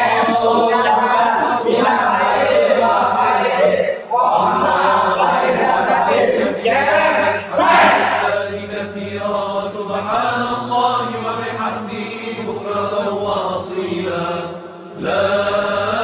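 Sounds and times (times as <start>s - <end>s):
men chanting in unison: 0.0s - 16.0s
group cheering: 0.8s - 8.4s.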